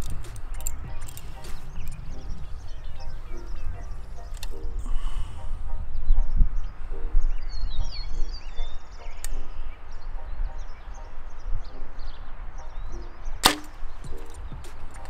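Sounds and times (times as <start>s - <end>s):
birds chirping: 0.0s - 15.0s
bow string snap: 13.4s - 14.8s.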